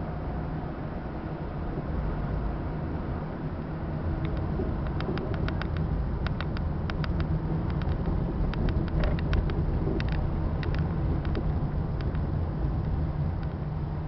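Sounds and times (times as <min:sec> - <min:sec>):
bus engine and road rumble: 0:00.0 - 0:14.0
clicks and rattles: 0:04.3 - 0:12.2.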